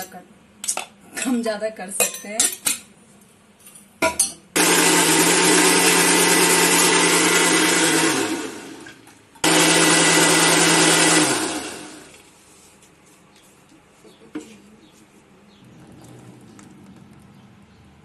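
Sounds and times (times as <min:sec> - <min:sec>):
mixer grinder humming: 0:04.6 - 0:12.4.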